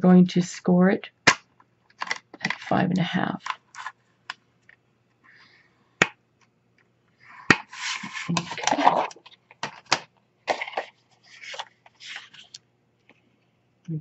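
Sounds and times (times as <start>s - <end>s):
bone folder scoring card: 7.3s - 12.6s
paper rustling: 7.3s - 12.6s.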